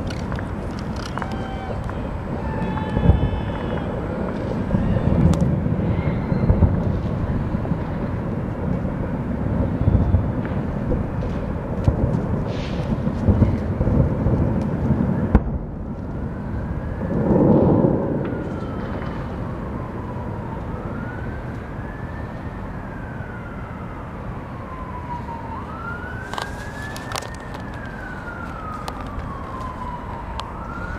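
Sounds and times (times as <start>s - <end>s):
distant fireworks booms: 0.0s - 20.2s
emergency vehicle siren wailing: 0.0s - 30.9s.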